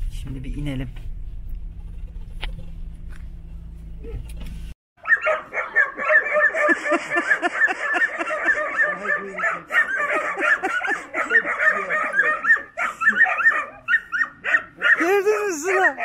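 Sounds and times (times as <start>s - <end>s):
car engine rumble: 0.0s - 4.8s
dogs barking and yipping: 5.0s - 16.0s.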